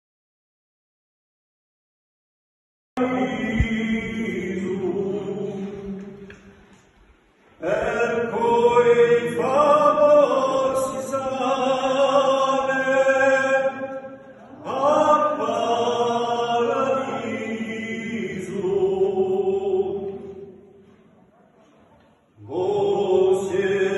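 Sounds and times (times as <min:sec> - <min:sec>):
men singing unaccompanied chant: 0:03.0 - 0:06.3, 0:07.6 - 0:20.4, 0:22.4 - 0:23.9.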